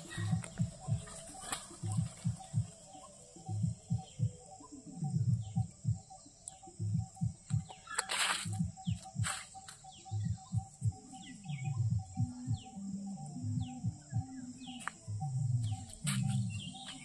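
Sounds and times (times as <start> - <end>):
birds chirping: 0.0 - 17.0
high insect drone: 0.0 - 17.0
low rhythmic notes: 0.0 - 17.0.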